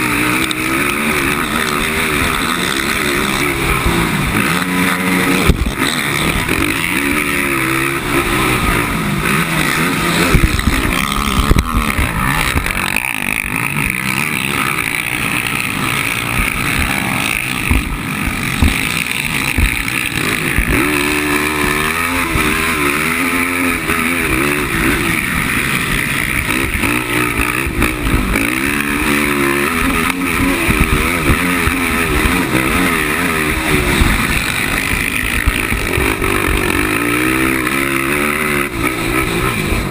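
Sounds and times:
quad engine revving hard: 0.0 - 39.9
track noise: 0.0 - 39.9
wind noise: 5.3 - 6.7, 8.0 - 13.4.

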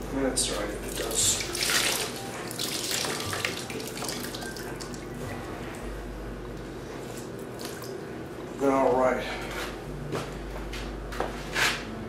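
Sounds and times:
water dripping from wrung towel: 1.5 - 5.0.

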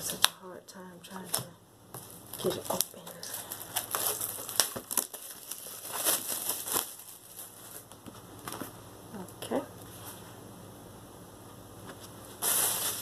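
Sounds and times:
plastic shrink-wrap crinkling: 1.3 - 8.8, 12.3 - 13.0.

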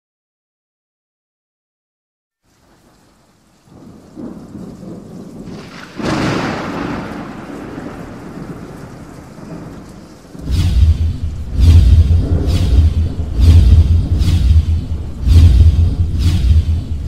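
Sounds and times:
rain hiss: 2.4 - 17.0
loud thunderclap: 3.6 - 17.0.

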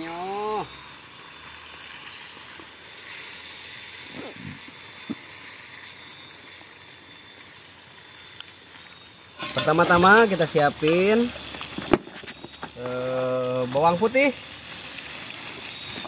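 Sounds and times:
food sizzling in a pan: 0.0 - 16.0
spatula scraping and knocking pan: 9.4 - 10.0.

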